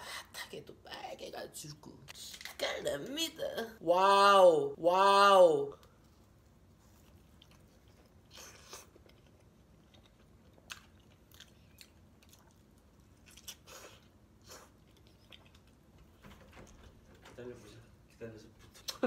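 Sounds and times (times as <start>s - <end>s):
faint chewing: 5.8s - 16.8s.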